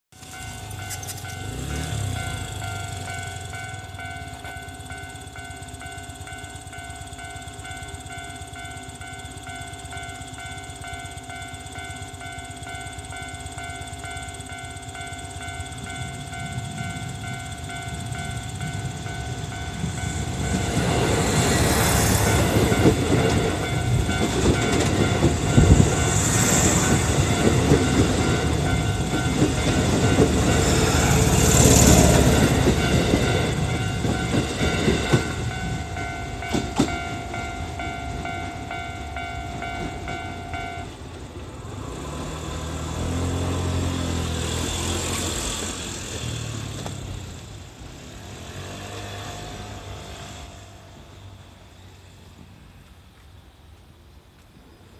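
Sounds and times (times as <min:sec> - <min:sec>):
level-crossing alarm ringing: 0:00.1 - 0:41.2
electric train passing: 0:00.1 - 0:54.9
train wheel knocks: 0:36.5 - 0:37.3.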